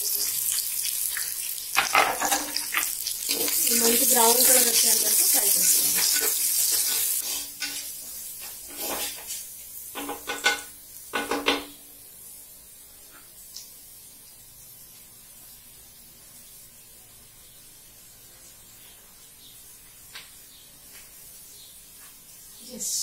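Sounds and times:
faint steady hiss: 0.0 - 23.0
utensils and pots clattering: 1.7 - 11.8.

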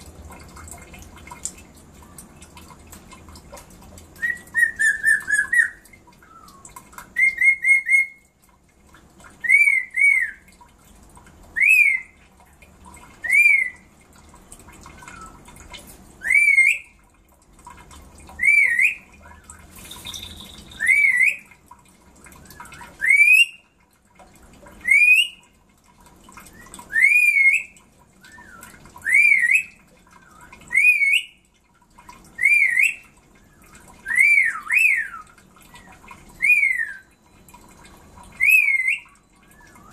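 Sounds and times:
parrot shrill rising whistles: 4.2 - 6.6, 7.2 - 8.2, 16.2 - 16.9, 18.4 - 19.0, 19.8 - 21.5, 23.0 - 23.6, 26.9 - 27.7, 30.7 - 31.3, 34.0 - 35.2, 36.4 - 37.1, 38.4 - 39.9.

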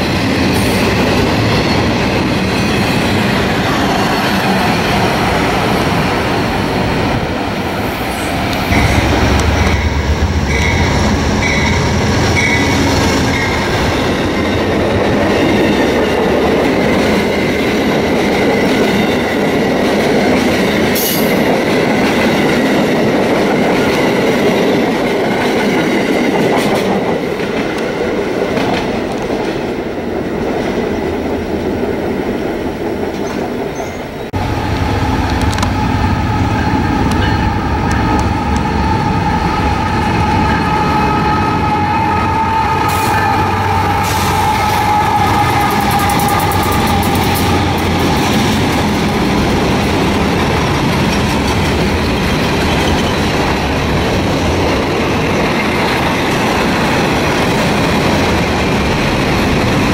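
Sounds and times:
diesel locomotive passing: 0.0 - 59.9
steady high tone: 1.6 - 14.7
train wheels clicking over rail joints: 43.8 - 59.9.

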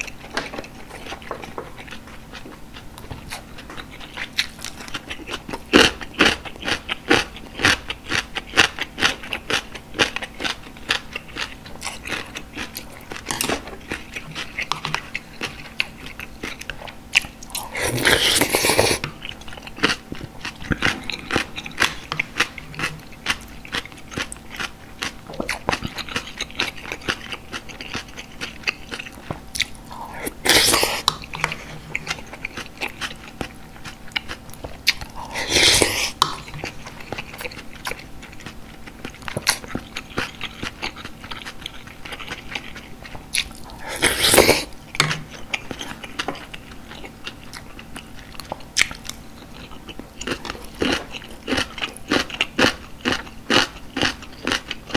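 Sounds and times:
wet chewing and lip-smacking: 0.0 - 54.9
slurp from a spoon: 17.6 - 19.1, 30.0 - 31.2, 35.2 - 36.2, 43.7 - 44.7.

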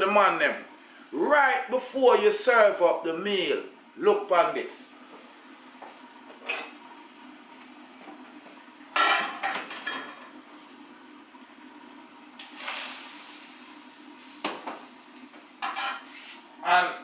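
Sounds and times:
metal pots and lids clanking: 9.0 - 10.2
rushing hiss: 12.6 - 13.6.

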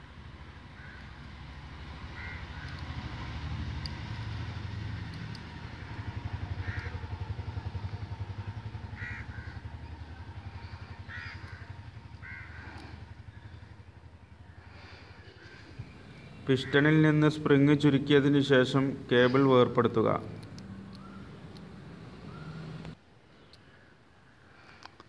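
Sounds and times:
engine throbbing: 0.0 - 23.0
crows cawing: 0.7 - 1.2, 2.1 - 3.2, 5.8 - 13.7, 14.5 - 15.7.

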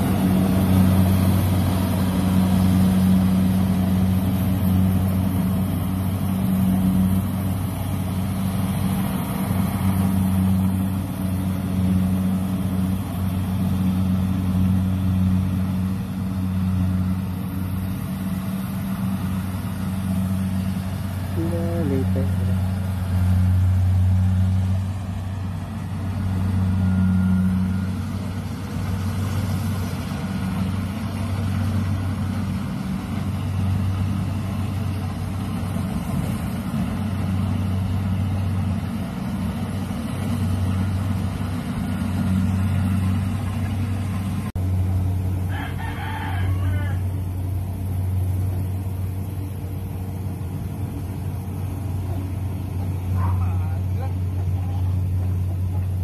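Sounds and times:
harvester engine droning: 0.0 - 56.0
rooster crowing: 45.4 - 47.2.

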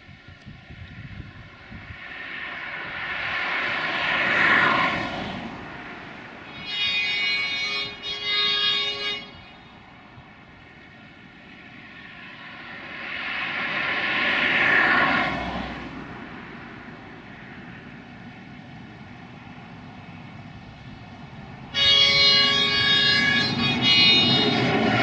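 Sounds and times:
rumbling engine: 0.0 - 25.0
locomotive horn blasts: 6.4 - 9.9, 21.7 - 25.0.

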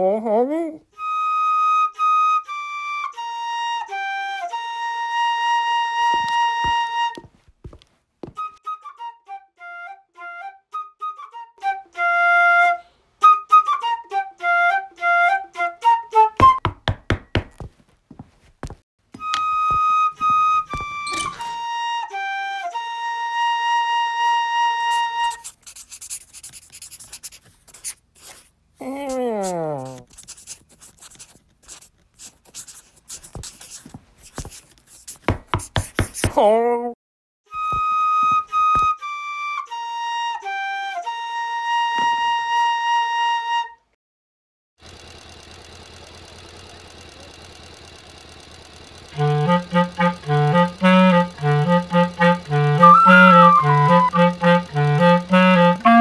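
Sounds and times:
solo flute melody: 0.9 - 7.3, 8.3 - 16.6, 19.2 - 25.4, 37.5 - 44.0, 49.1 - 56.0.

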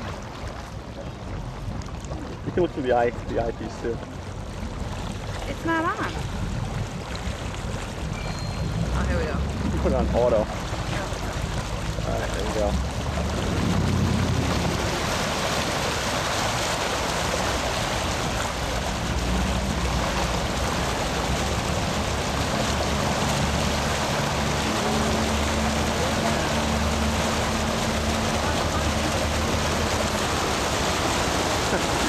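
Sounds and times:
motorboat engine droning: 0.0 - 32.0
wind: 0.0 - 32.0
water spray rushing: 8.1 - 32.0.

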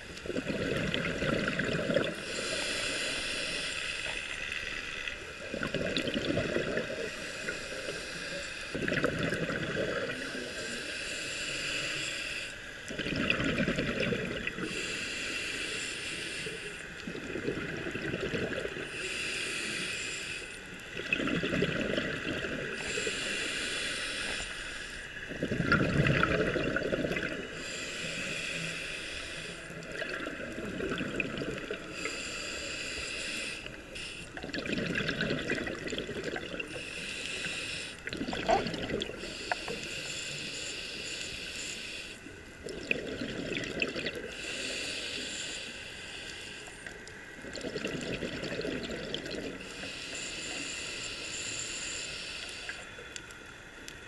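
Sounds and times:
bubbling rush of exhale: 0.0 - 4.3, 25.3 - 28.5, 34.3 - 40.0
diver breathing through regulator: 0.0 - 20.9, 21.7 - 53.4.

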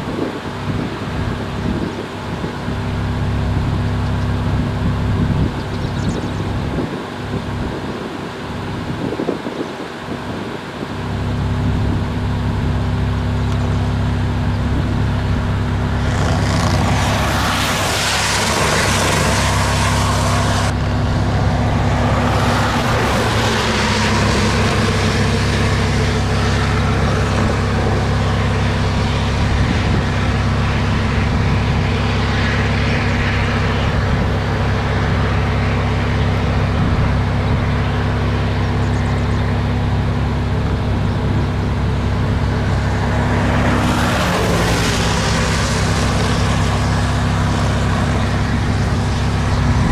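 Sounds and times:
vehicle engine idling: 0.0 - 49.9
burst of rushing noise: 14.8 - 37.8.

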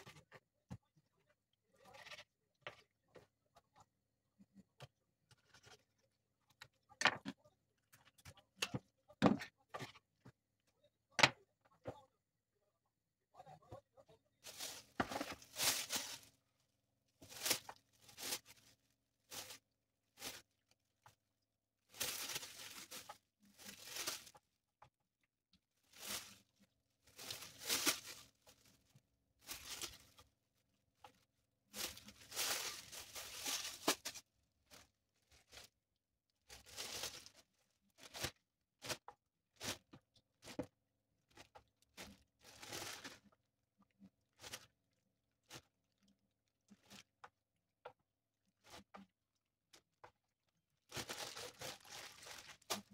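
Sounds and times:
plastic bags crinkling: 14.5 - 16.3, 21.9 - 24.4, 25.8 - 28.7, 29.4 - 30.2, 31.8 - 35.7, 36.5 - 37.4, 50.9 - 52.9.

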